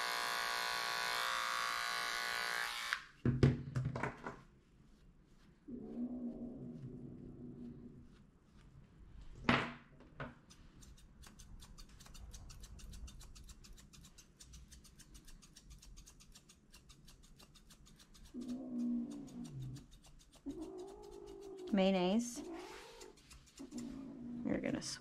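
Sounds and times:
cat growling: 0:05.7 - 0:08.0, 0:18.3 - 0:24.9
shears snipping fur: 0:10.4 - 0:24.0.

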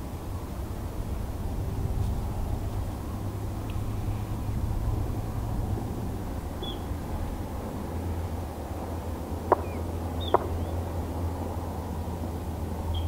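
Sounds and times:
low rumble: 0:00.0 - 0:11.8
faint bird chirps: 0:06.6 - 0:06.9, 0:09.5 - 0:10.8.

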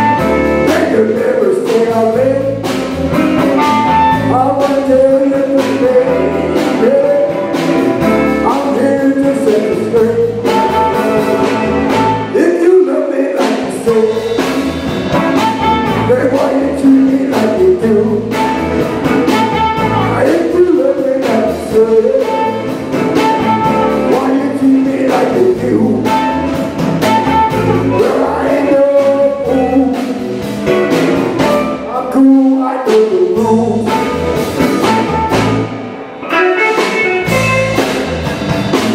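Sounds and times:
blues band playing: 0:00.0 - 0:38.9
harmonica: 0:10.4 - 0:12.4, 0:15.2 - 0:16.5, 0:22.0 - 0:24.5, 0:33.9 - 0:38.0.

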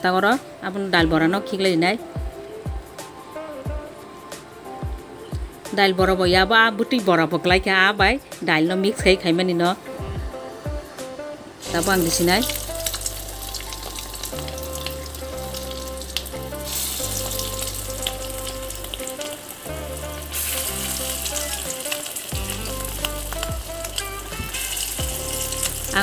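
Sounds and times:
batter sizzling in hot oil: 0:10.8 - 0:26.0.

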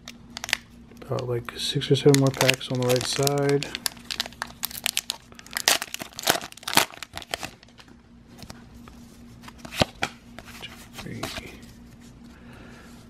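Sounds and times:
foil wrapper crinkling: 0:00.3 - 0:07.9.

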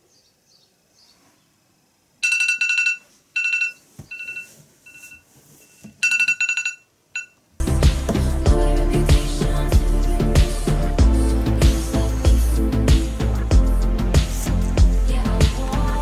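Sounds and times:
phone alarm ringtone trilling: 0:02.2 - 0:07.4
loud music with steady beat: 0:07.6 - 0:16.0.

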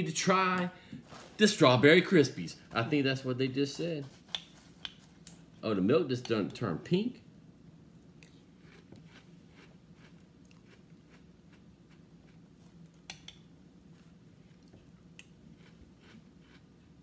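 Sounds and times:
chewing cereal: 0:07.9 - 0:13.1, 0:14.4 - 0:17.0.

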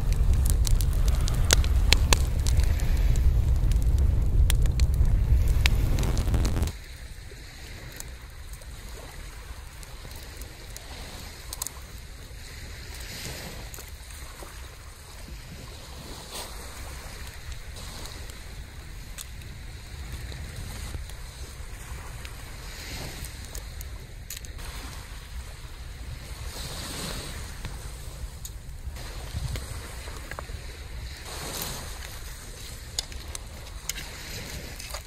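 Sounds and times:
small clicks and cracks: 0:00.0 - 0:06.8, 0:09.7 - 0:14.2, 0:17.2 - 0:24.6, 0:28.4 - 0:28.8, 0:31.1 - 0:35.0
waves washing on sand: 0:00.0 - 0:35.0
wind rumbling on microphone: 0:00.0 - 0:35.0.

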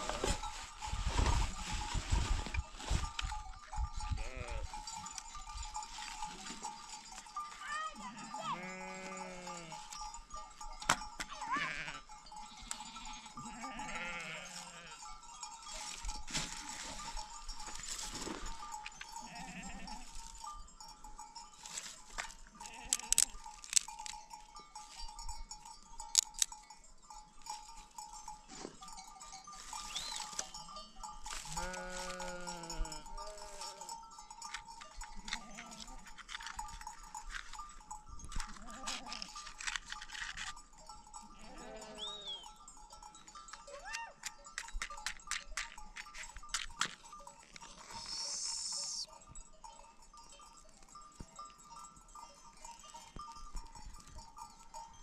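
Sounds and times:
flock bells clinking: 0:00.0 - 0:55.0
sheep bleating: 0:04.2 - 0:04.8, 0:07.9 - 0:09.9, 0:11.3 - 0:15.0, 0:19.2 - 0:20.1, 0:22.6 - 0:23.3, 0:31.4 - 0:33.8, 0:35.2 - 0:36.1, 0:38.6 - 0:39.3, 0:41.3 - 0:42.4.

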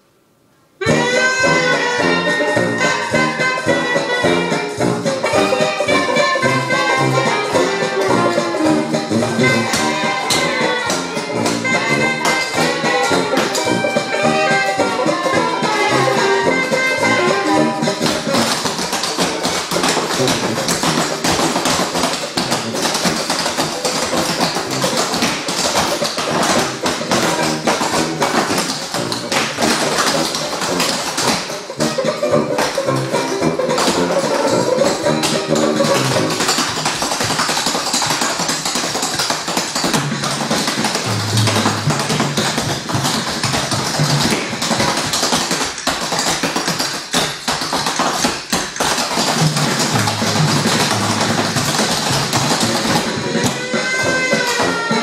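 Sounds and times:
backing music: 0:00.8 - 0:55.0
clogging taps on hard floor: 0:32.6 - 0:54.7.

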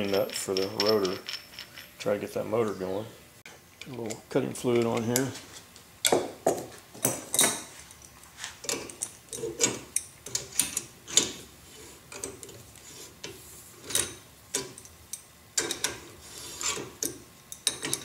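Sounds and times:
metal wrenches clinking: 0:00.0 - 0:02.2, 0:13.8 - 0:18.0.

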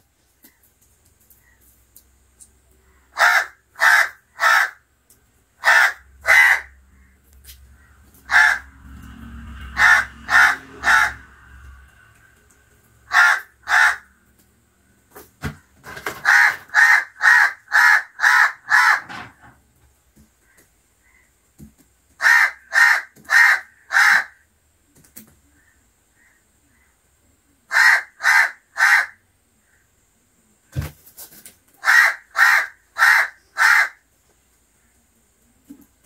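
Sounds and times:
crows cawing: 0:02.9 - 0:04.9, 0:05.6 - 0:12.0, 0:13.0 - 0:14.1, 0:16.2 - 0:19.4, 0:20.4 - 0:21.4, 0:22.2 - 0:24.4, 0:27.7 - 0:29.8, 0:31.8 - 0:34.0.

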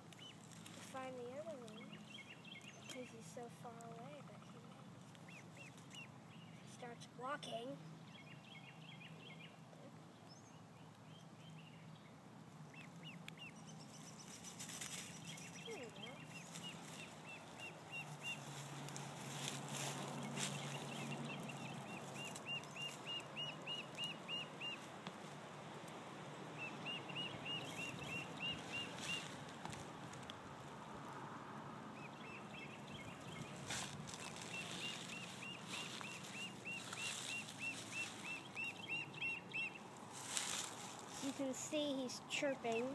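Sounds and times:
duckling peeping: 0:12.6 - 0:24.9, 0:26.6 - 0:29.8, 0:31.9 - 0:39.9.

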